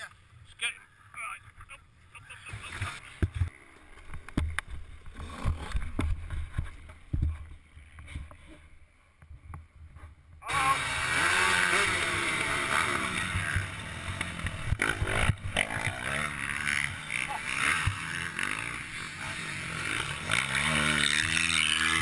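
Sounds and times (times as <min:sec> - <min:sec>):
motocross bike engine revving: 0:05.1 - 0:06.6, 0:10.4 - 0:22.0.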